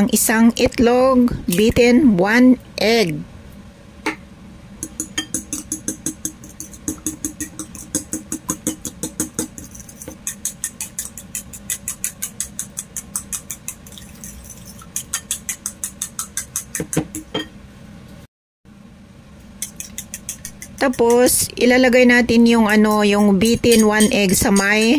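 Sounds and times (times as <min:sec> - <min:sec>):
fork beating egg in bowl: 0:04.8 - 0:17.4, 0:19.4 - 0:24.9.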